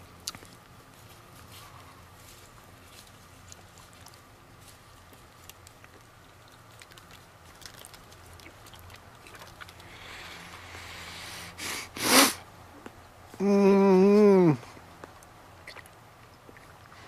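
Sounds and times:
chewing and mouth noises: 0.0 - 11.1, 14.6 - 17.0
heavy breathing: 9.8 - 12.4
sharp blasts of breath: 9.9 - 12.4
man groaning: 13.4 - 14.6.

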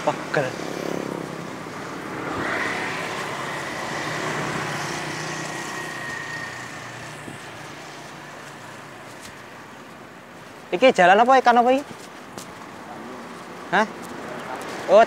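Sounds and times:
motorcycle passing: 0.0 - 10.2
street traffic noise: 0.0 - 15.0.

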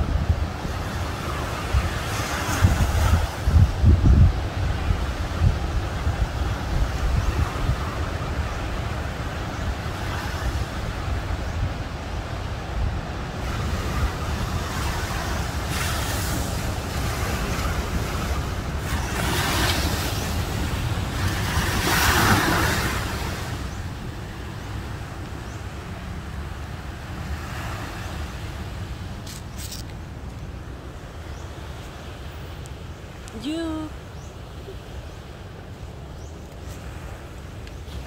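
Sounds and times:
wind buffeting microphone: 0.0 - 33.4
waves breaking: 0.0 - 38.0
water washing up sand: 12.6 - 29.9.

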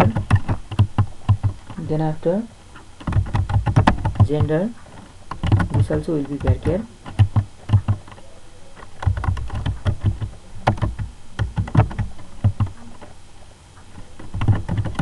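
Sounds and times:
keyboard typing: 3.0 - 4.7, 5.3 - 13.0, 14.2 - 15.0.

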